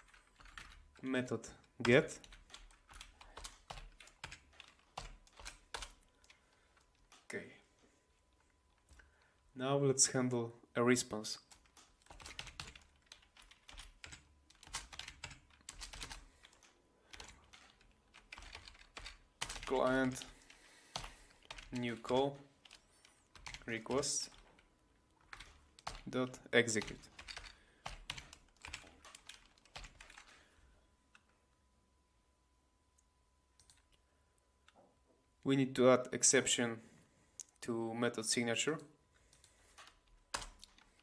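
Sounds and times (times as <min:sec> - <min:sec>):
computer keyboard typing: 0:00.0 - 0:00.9, 0:01.6 - 0:07.3, 0:11.4 - 0:30.5, 0:33.6 - 0:33.9, 0:39.3 - 0:41.0.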